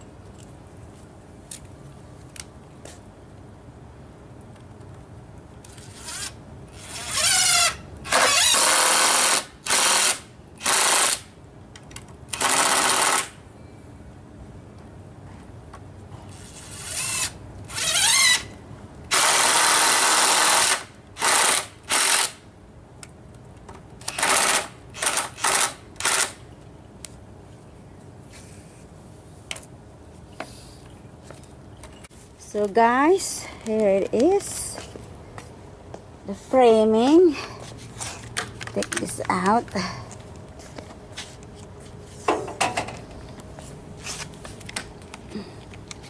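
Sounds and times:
cordless drill whining: 16.4s - 18.5s.

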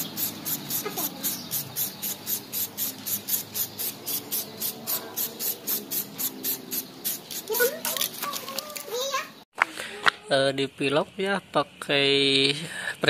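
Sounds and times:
fast high rhythmic pulsing: 0.0s - 7.6s
spray can hissing: 0.0s - 8.5s.

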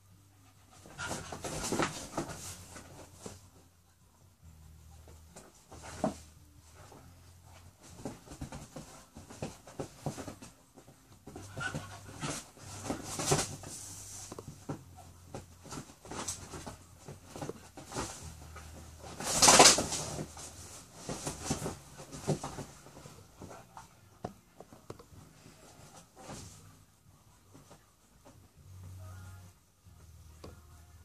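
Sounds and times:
animals scrabbling on leather couch: 0.7s - 3.5s, 5.3s - 26.7s.

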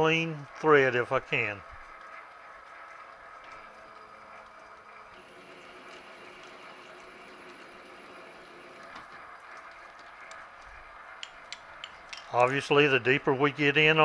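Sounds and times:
metal lathe humming: 3.2s - 9.0s.

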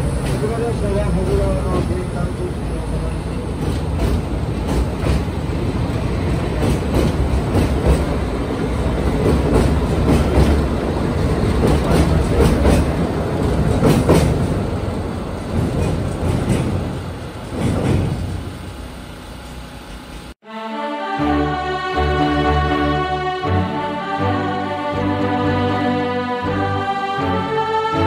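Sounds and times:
wheels clattering over rail joints: 0.0s - 18.8s
train rumbling over a bridge: 0.0s - 20.4s.

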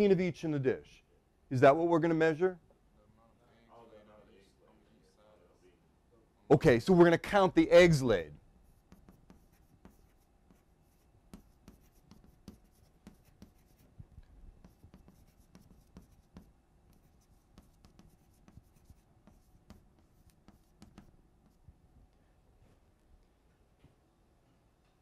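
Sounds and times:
pen scratching while writing: 8.6s - 13.9s, 14.6s - 21.6s.

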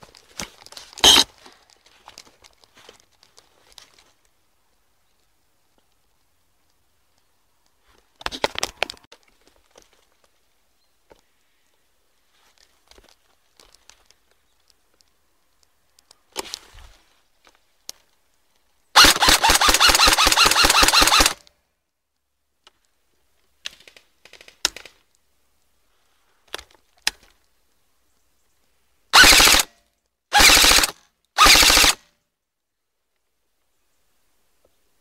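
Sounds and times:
faint handling clicks: 12.5s - 16.6s
airsoft rifle firing bursts: 19.0s - 21.4s, 29.2s - 29.7s, 30.3s - 32.0s.

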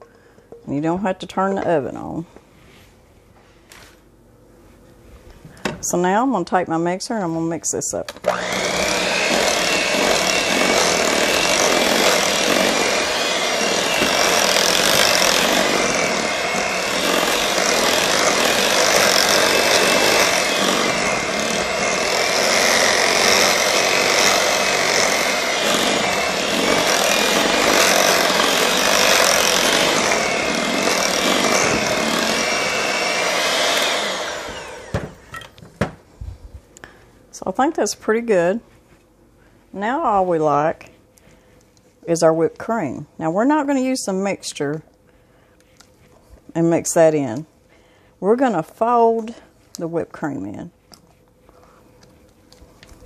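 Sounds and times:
electric hand mixer whine: 8.2s - 35.4s.

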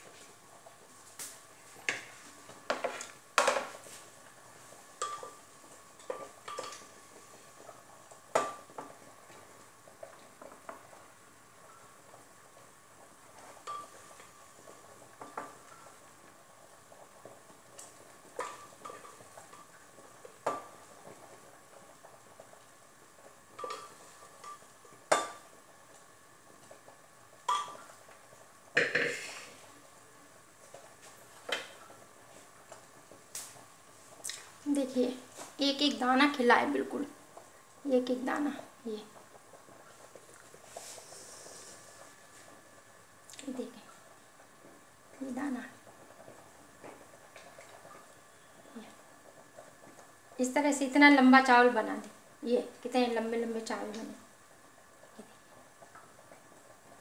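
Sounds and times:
metal utensil clinking on pot: 5.0s - 5.4s, 23.6s - 25.4s.

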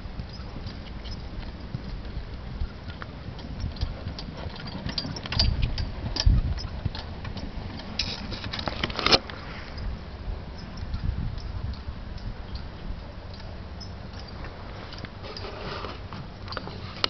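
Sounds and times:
hoofbeats on sand: 0.0s - 8.3s
cart rattling: 0.2s - 9.2s.

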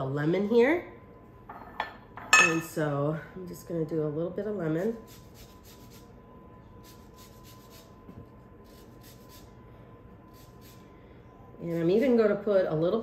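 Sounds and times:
grater scraping peel: 6.8s - 8.0s, 8.6s - 9.5s, 10.3s - 10.8s.

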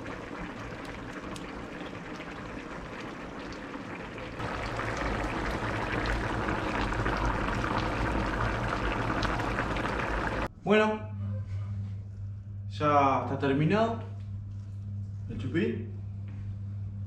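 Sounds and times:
stew bubbling: 0.0s - 10.5s.

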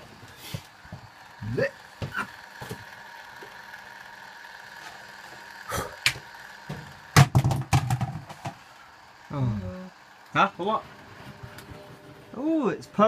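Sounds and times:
washing machine motor hum: 0.0s - 13.0s
drum knocks and thuds: 6.8s - 8.6s.

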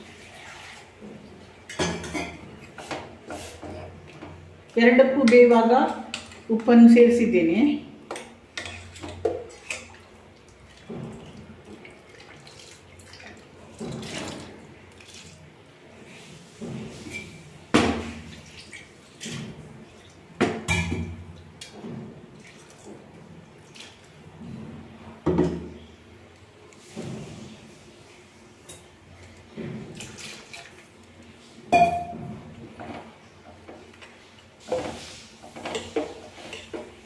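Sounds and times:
metal clinks against pot: 31.7s - 32.2s.

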